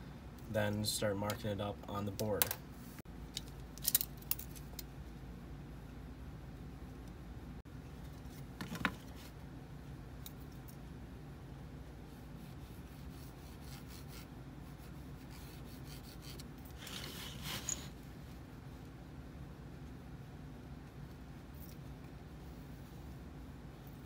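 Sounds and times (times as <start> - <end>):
pencil scratching on wood: 12.2 - 17.5.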